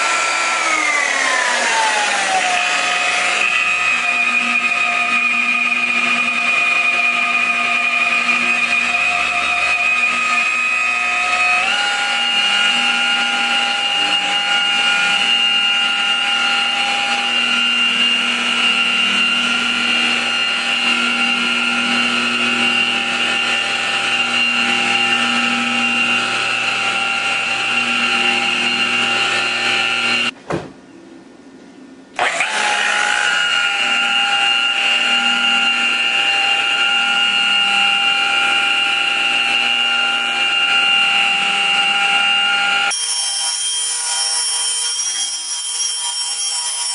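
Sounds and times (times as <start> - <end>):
electric buffer motor whine: 0.0 - 30.4, 32.2 - 46.9.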